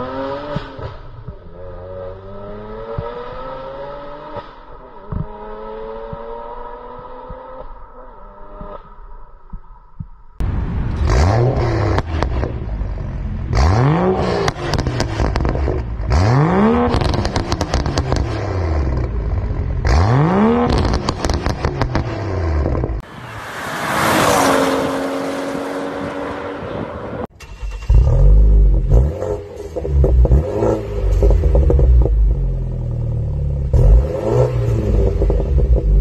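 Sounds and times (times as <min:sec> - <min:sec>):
car exhaust revving: 0:10.4 - 0:36.0
loud modified car exhaust: 0:10.4 - 0:36.0.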